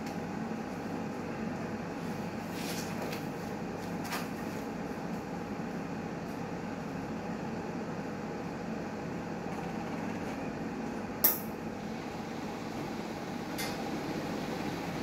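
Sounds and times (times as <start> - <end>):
autoclave mechanical hum: 0.0 - 15.0.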